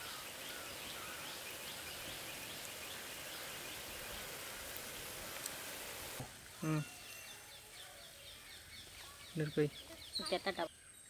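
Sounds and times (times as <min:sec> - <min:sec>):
steady hiss: 0:00.0 - 0:07.2
small birds chirping: 0:00.0 - 0:11.0.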